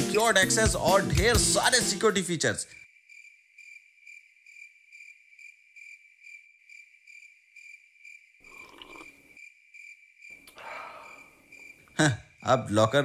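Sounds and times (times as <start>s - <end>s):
crickets chirping: 2.6s - 13.0s.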